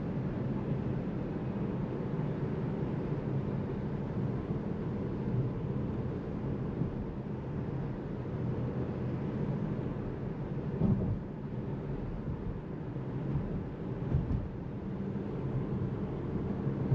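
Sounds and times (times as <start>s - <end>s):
tyre and road noise rumble: 10.6s - 16.9s
car bump: 10.8s - 11.2s, 13.3s - 14.5s.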